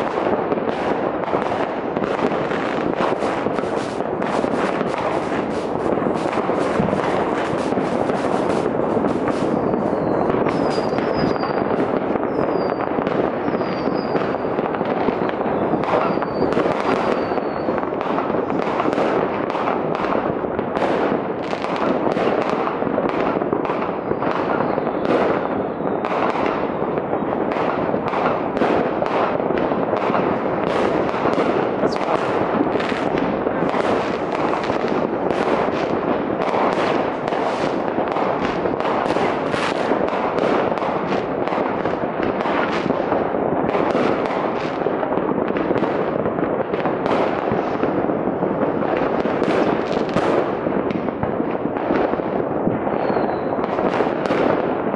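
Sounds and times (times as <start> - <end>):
firecrackers and rocket bursts: 0.0 - 54.9
high falling whistles: 9.5 - 11.6.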